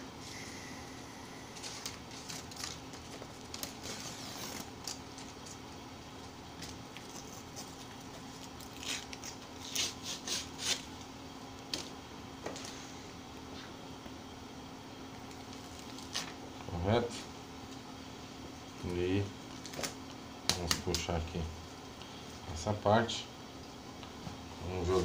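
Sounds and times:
faint steady hum: 0.0 - 25.0
plastic rustling: 1.5 - 5.8.

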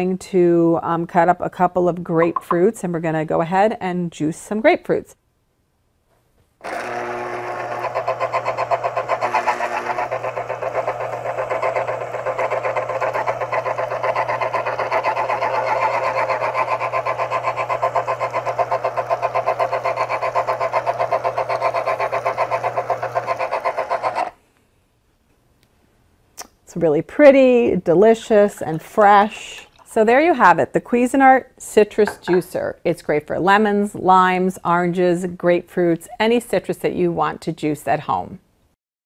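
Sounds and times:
juicer motor humming and pulsing: 6.6 - 24.4.

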